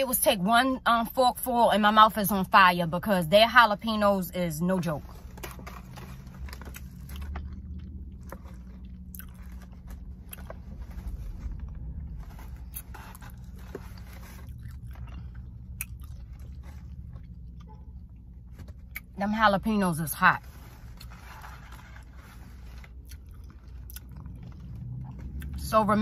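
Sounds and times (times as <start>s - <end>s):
low hum: 4.0s - 26.0s
person chewing food: 5.2s - 19.1s, 20.9s - 25.6s.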